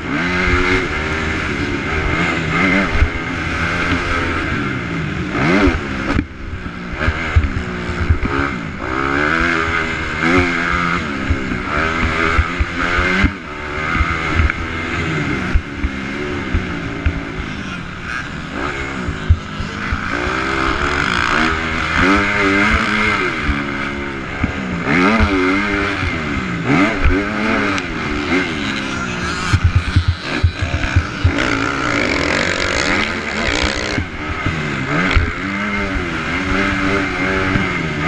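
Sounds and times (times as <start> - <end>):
motocross bike engine revving: 0.0 - 38.0.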